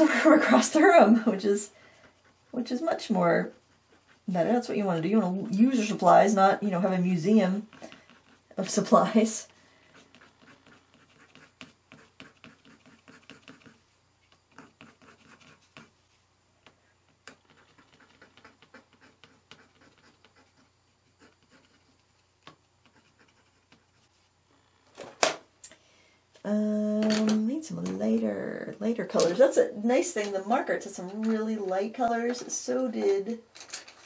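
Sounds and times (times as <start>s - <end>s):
pencil scratching on paper: 0.2s - 13.8s, 14.4s - 16.0s, 17.3s - 22.2s, 22.8s - 24.3s.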